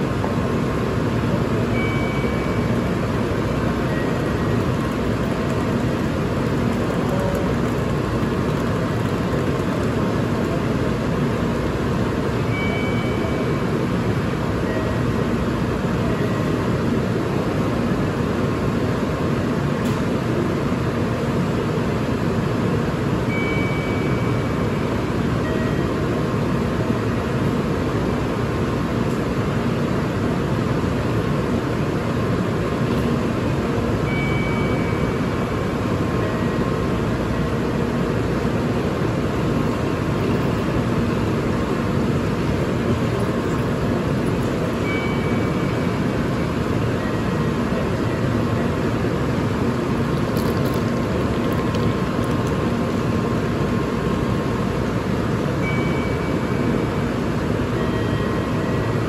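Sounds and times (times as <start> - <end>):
train platform hum and hiss: 0.0 - 59.0
faint short high tones: 1.7 - 2.9, 12.4 - 13.7, 44.8 - 46.1, 55.6 - 57.0.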